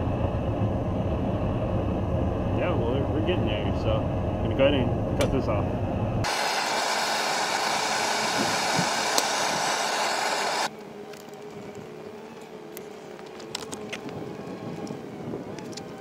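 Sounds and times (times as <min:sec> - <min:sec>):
gas burner hissing: 0:01.0 - 0:10.7.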